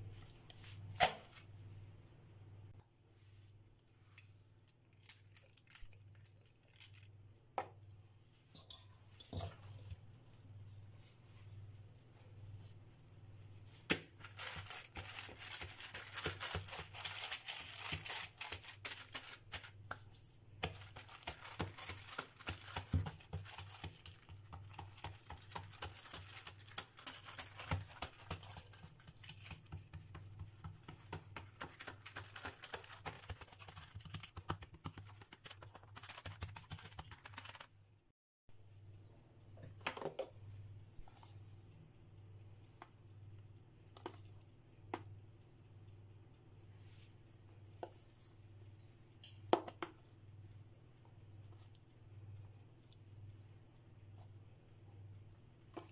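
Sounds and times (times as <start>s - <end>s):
low steady hum: 0.0s - 32.4s, 37.8s - 55.9s
baking paper crackling: 4.7s - 7.2s, 13.6s - 37.7s.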